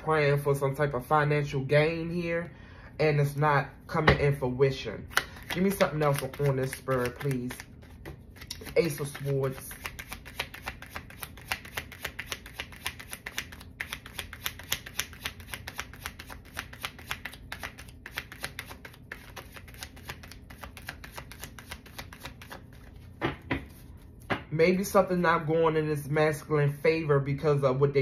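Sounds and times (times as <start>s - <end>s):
cards being shuffled: 5.1s - 24.3s.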